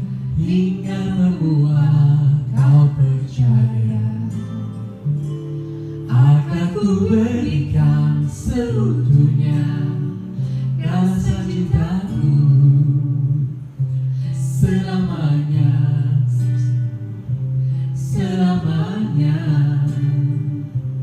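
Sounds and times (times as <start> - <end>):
man singing: 0.0 - 4.7, 6.1 - 16.9, 18.0 - 20.8
guitar backing track: 0.0 - 21.0
woman singing: 10.8 - 12.7.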